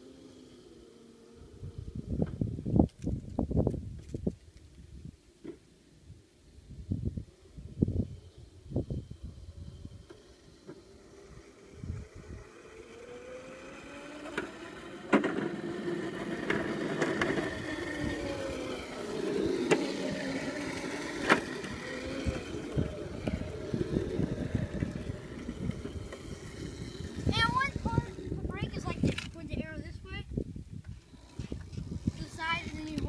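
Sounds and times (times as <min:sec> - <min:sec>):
wheels rolling on asphalt: 0:00.0 - 0:33.0
electric motor whining: 0:07.3 - 0:33.0.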